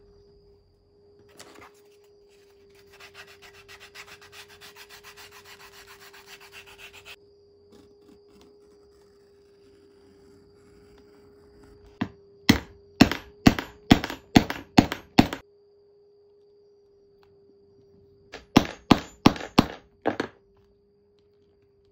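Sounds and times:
leather edge sanding strokes: 0:02.8 - 0:07.2.

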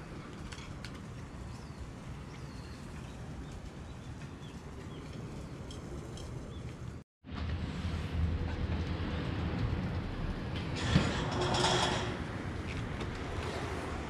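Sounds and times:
steady background noise: 0:00.0 - 0:14.0
small birds chirping: 0:01.4 - 0:07.0.

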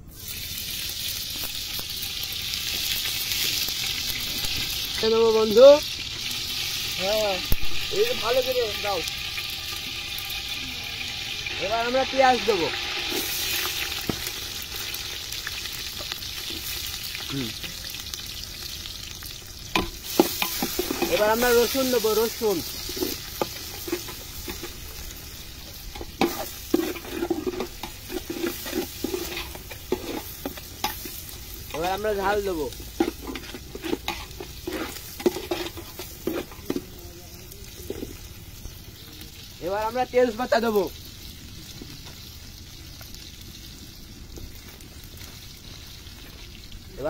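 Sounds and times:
food sizzling in oil: 0:00.0 - 0:47.0
metal ladle scraping pot: 0:19.8 - 0:21.9, 0:22.6 - 0:25.2, 0:25.8 - 0:31.9, 0:32.8 - 0:36.8.

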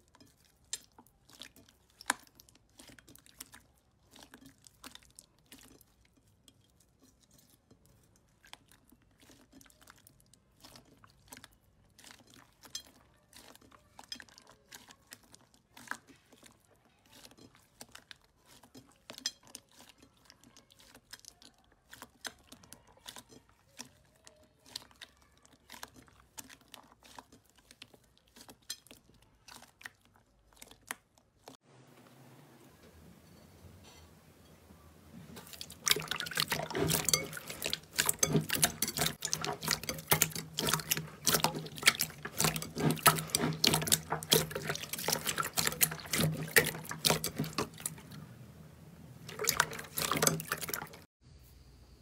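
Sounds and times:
slime crackling and squelching: 0:00.0 - 0:31.6, 0:35.2 - 0:48.2, 0:49.2 - 0:51.1.

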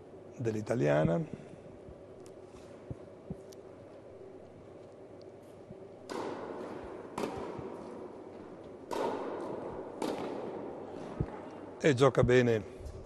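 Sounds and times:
tennis ball hit by racket: 0:06.1 - 0:08.1, 0:08.8 - 0:11.4.

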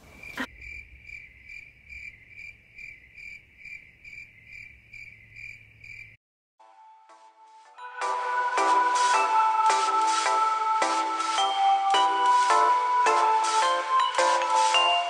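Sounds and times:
cricket chirping: 0:00.0 - 0:06.2.

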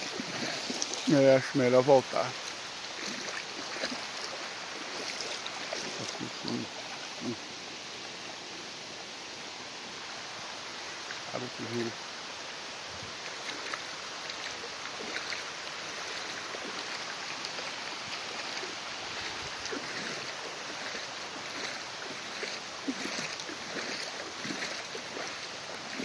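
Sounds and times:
small water splashes: 0:00.0 - 0:07.5, 0:13.1 - 0:26.0
floodwater rushing: 0:00.0 - 0:26.0.

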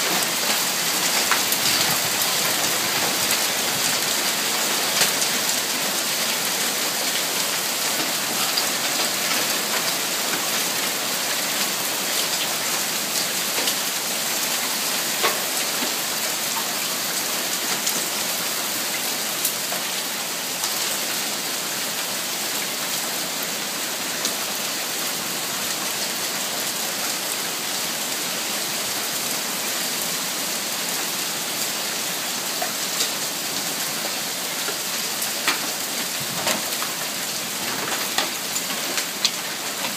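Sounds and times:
hail pelting ground and cars: 0:00.0 - 0:21.0, 0:30.9 - 0:39.9.

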